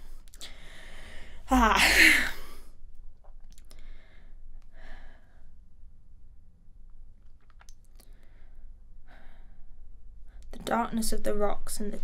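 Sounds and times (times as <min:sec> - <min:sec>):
low room hum: 0:00.0 - 0:12.0
person sighing: 0:00.4 - 0:02.7.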